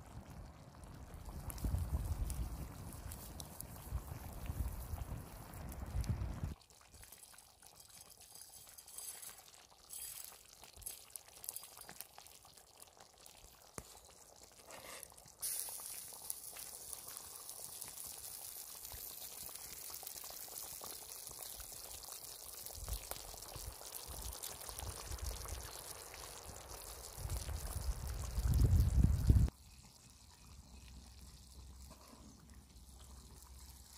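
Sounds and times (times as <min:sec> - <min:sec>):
food sizzling in a hot pan: 0:06.4 - 0:30.1.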